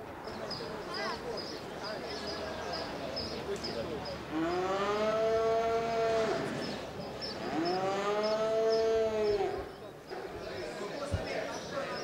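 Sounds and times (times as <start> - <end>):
cow mooing: 7.5 - 9.6.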